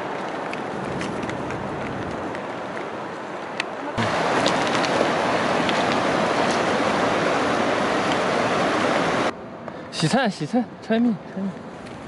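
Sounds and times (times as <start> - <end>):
mountain river rushing: 0.0 - 9.3
outdoor noise: 0.0 - 12.0.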